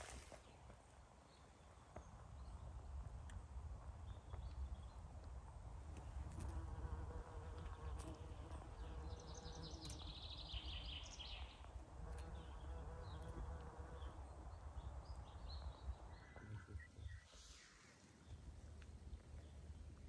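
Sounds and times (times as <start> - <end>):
bumblebee buzzing: 6.1 - 10.8, 11.9 - 14.2.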